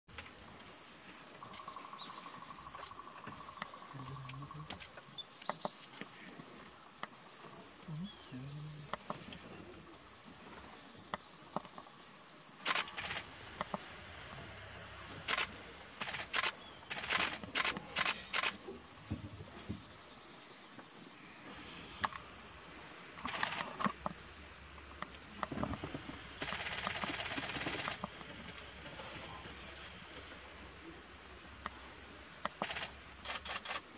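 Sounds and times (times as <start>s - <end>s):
insects chirring: 0.1s - 33.9s
camera shutter clicks: 12.6s - 13.3s, 15.3s - 18.6s.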